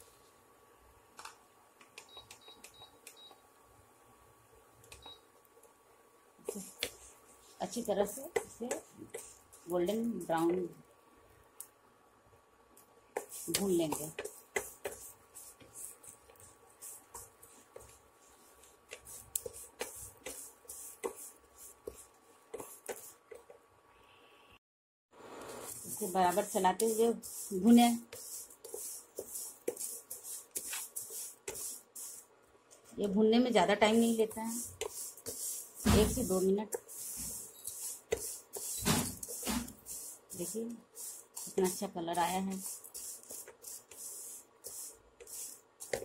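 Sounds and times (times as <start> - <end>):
wooden spatula scraping a pan: 33.9 - 41.8.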